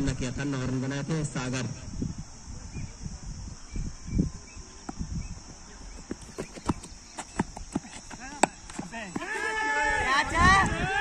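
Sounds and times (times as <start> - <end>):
running footsteps on hard ground: 5.8 - 11.0.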